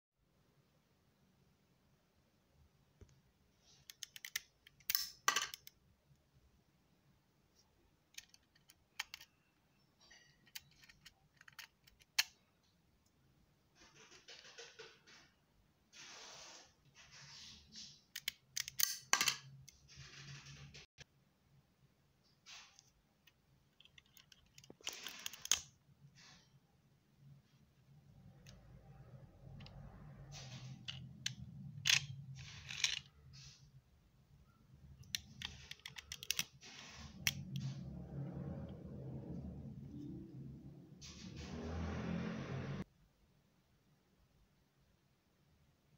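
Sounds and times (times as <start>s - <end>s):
plastic toy clicking: 3.8s - 5.8s, 8.1s - 9.4s, 10.3s - 12.4s, 18.1s - 19.1s, 23.8s - 25.7s, 30.8s - 33.1s, 35.0s - 36.5s.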